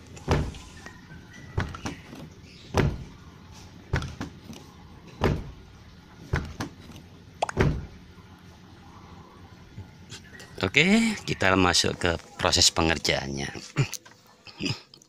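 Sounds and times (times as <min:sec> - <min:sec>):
car door thudding shut: 0:00.2 - 0:00.6, 0:02.7 - 0:03.1, 0:05.2 - 0:05.6, 0:07.5 - 0:07.9.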